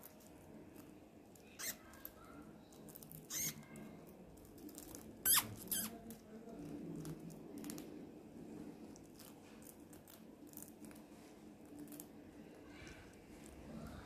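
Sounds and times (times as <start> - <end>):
rats squeaking: 1.3 - 3.9, 4.6 - 6.2.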